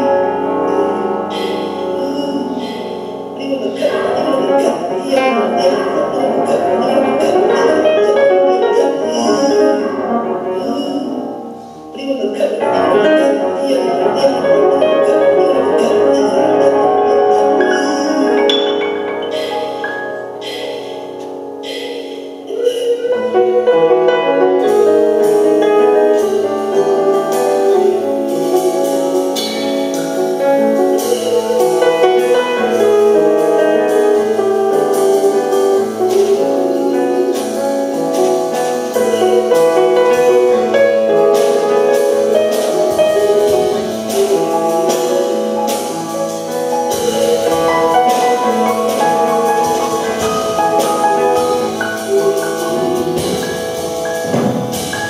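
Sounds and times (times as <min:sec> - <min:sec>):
grand piano playing: 0:00.0 - 0:55.0
percussion strikes: 0:14.1 - 0:22.5, 0:24.6 - 0:36.4, 0:37.3 - 0:55.0.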